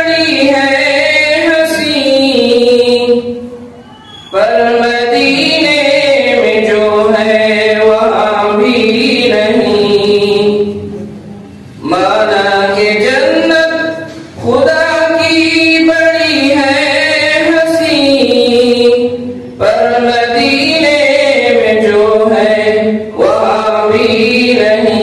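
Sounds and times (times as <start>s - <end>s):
person chanting: 0.0s - 11.0s, 11.8s - 25.0s.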